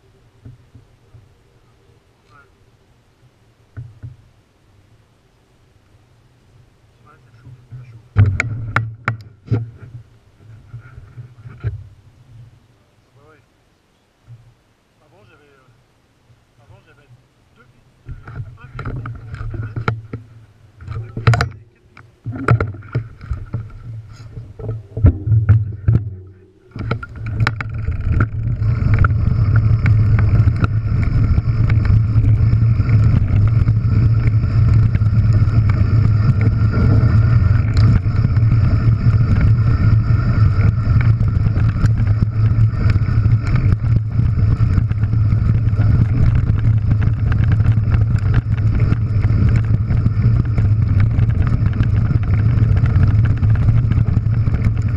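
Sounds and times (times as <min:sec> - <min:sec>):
bike knocks and clicks: 0:08.2 - 0:09.7
wind buffeting microphone: 0:18.0 - 0:54.9
bike tyres crunching on gravel: 0:21.0 - 0:54.9.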